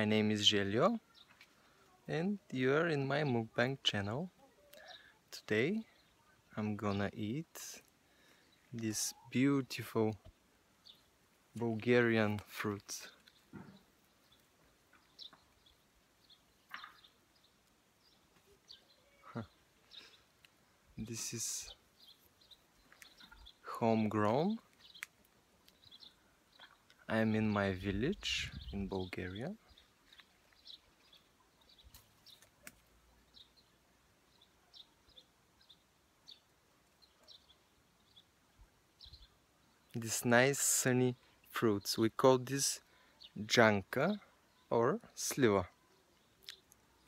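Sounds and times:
faint bird chirps: 12.6s - 27.1s, 28.1s - 40.0s
faint high bird chirps: 13.1s - 20.3s, 21.6s - 25.0s, 44.2s - 47.0s.

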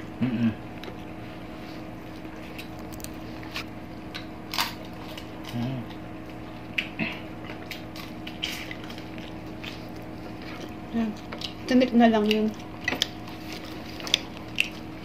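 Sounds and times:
person humming mm: 0.2s - 0.6s
chewing and crunching: 0.7s - 15.0s.

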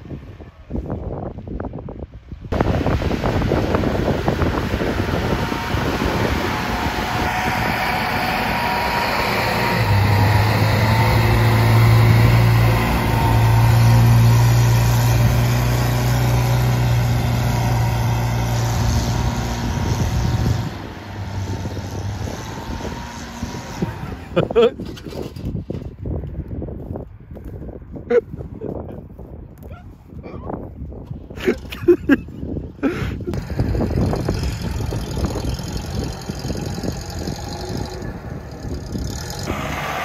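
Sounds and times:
engine droning at high revs: 2.5s - 24.7s, 33.3s - 40.0s
tyres churning mud: 3.6s - 24.8s.

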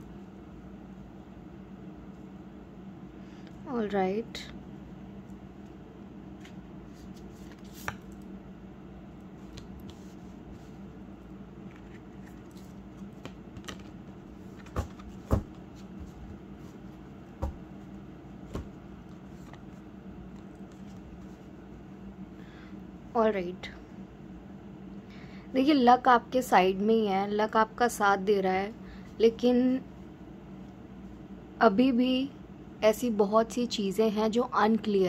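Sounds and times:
low room hum: 0.0s - 35.0s
cards tapping and clicking: 7.4s - 8.2s, 11.6s - 15.6s.

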